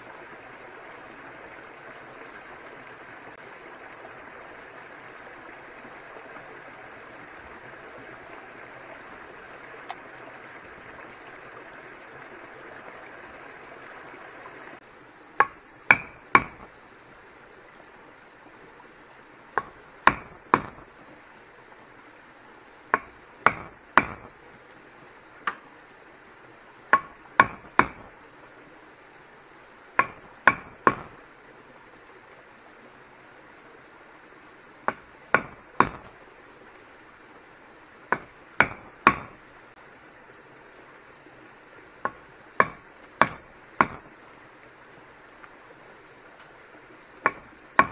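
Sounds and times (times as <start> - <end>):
tool striking wood: 15.4 - 16.6, 26.9 - 28.0, 30.0 - 31.1, 38.1 - 39.3, 42.6 - 44.0.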